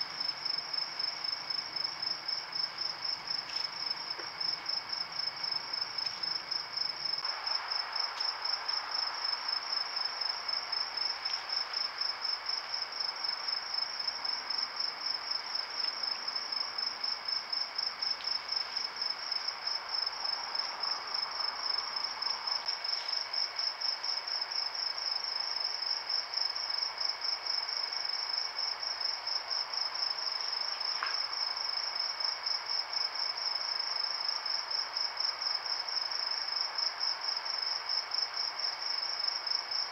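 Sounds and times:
night insects trilling: 0.0 - 39.9
faint ticks: 30.9 - 31.3.

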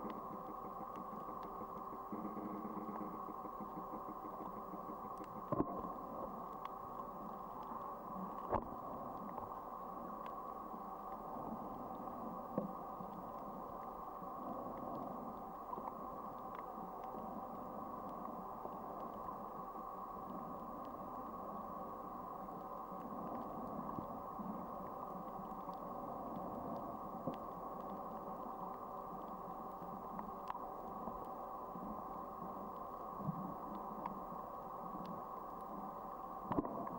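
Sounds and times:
faint clicks: 0.0 - 36.9
underwater hum: 0.0 - 36.9.

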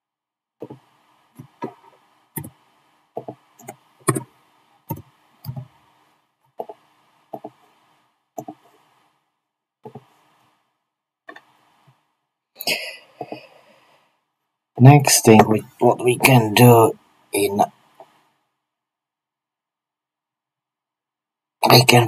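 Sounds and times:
keyboard key presses: 3.2 - 4.3, 4.9 - 5.7, 8.4 - 8.6.

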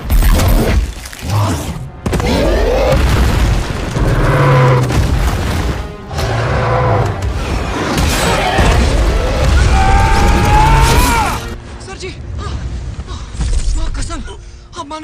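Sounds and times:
dramatic orchestral music: 0.6 - 15.0
explosions and booms: 1.9 - 5.9, 7.2 - 11.1.

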